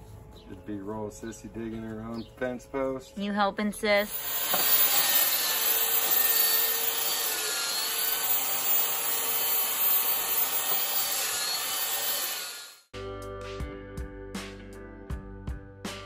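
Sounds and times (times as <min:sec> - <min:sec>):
belt sander sanding wood: 0:04.1 - 0:12.7.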